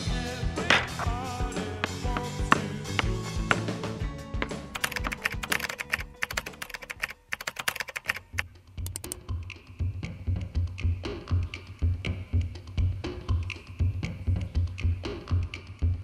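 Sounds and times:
fast keyboard typing: 0:04.7 - 0:09.2.

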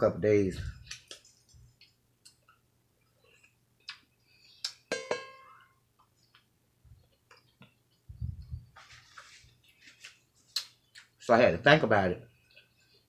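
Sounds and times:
sharp ringing clink: 0:04.9 - 0:05.7.

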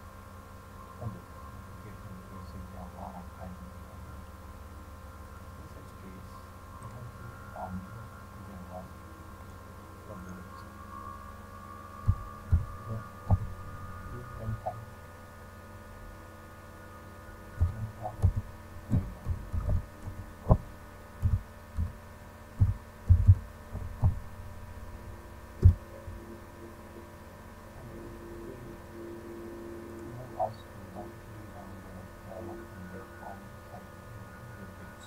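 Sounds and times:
steady electrical hum: 0:00.0 - 0:35.0
keyboard keystroke thuds: 0:17.6 - 0:22.0, 0:22.6 - 0:24.3, 0:25.6 - 0:25.8.

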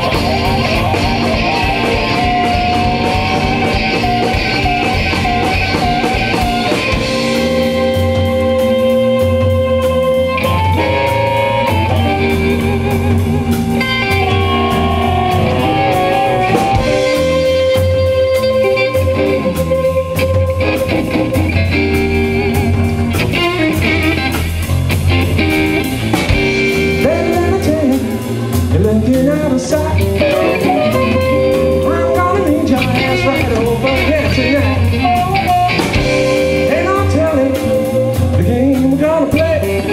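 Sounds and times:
harmonica: 0:00.0 - 0:09.5
bass guitar: 0:00.0 - 0:39.9
drums: 0:00.0 - 0:39.9
electric guitar: 0:00.0 - 0:39.9.

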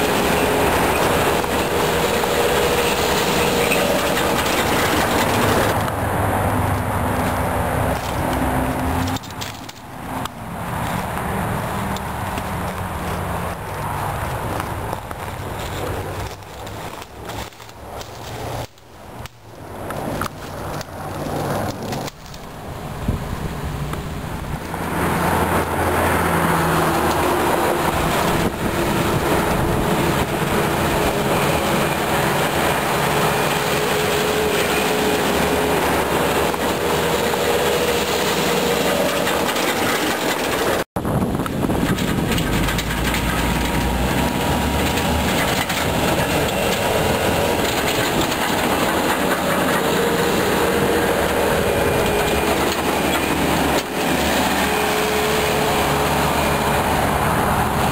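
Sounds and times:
machine clattering and rattling: 0:00.0 - 0:05.9, 0:26.8 - 0:57.2
loader engine drone: 0:00.0 - 0:57.9.

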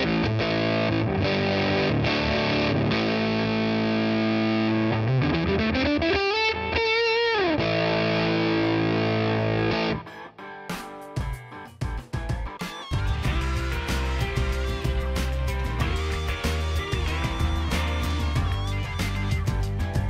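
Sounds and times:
fuzz electric guitar: 0:00.0 - 0:20.0.

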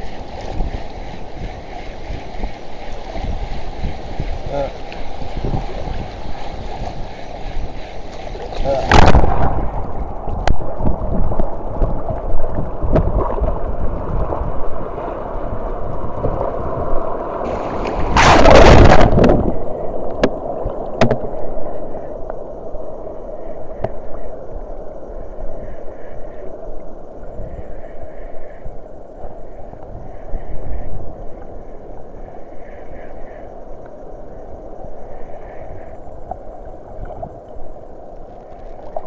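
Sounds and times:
sea water sloshing: 0:00.0 - 0:21.6
wave splashing over camera: 0:00.0 - 0:22.0.

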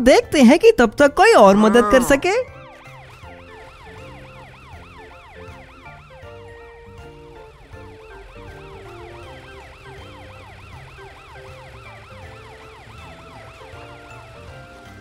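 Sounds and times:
cartoon police siren yelping: 0:01.3 - 0:02.6.

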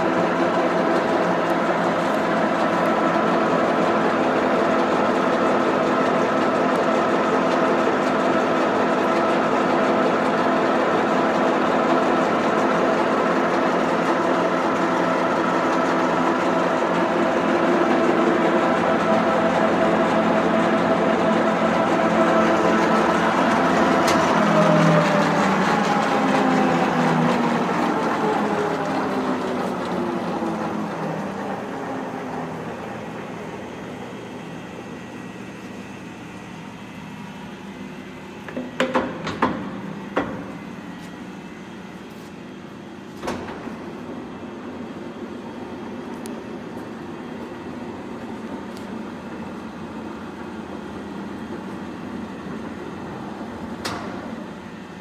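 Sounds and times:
lathe gearing whine: 0:00.0 - 0:55.0.

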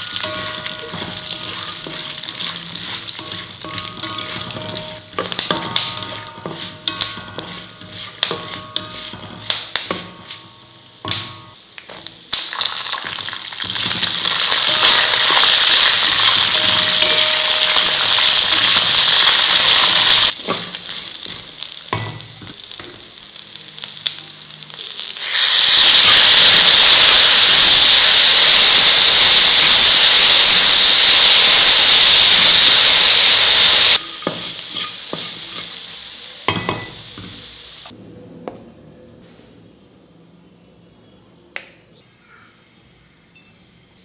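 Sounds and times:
spatula scraping and stirring: 0:00.0 - 0:10.7, 0:34.0 - 0:35.9
food frying in oil: 0:00.0 - 0:37.9
loud steady sizzle: 0:00.0 - 0:38.0.

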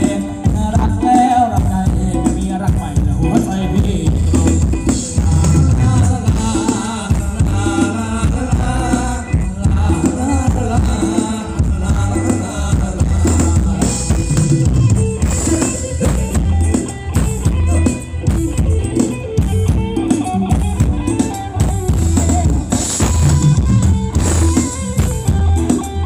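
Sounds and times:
drum kit beat: 0:00.0 - 0:26.0
live band playing dance music: 0:00.0 - 0:26.0.

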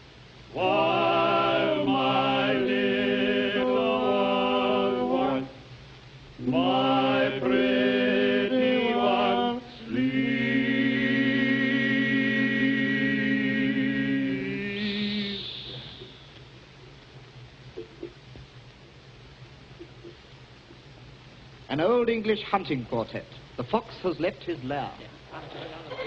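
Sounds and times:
male quartet singing in harmony: 0:00.5 - 0:05.6, 0:06.4 - 0:16.1.

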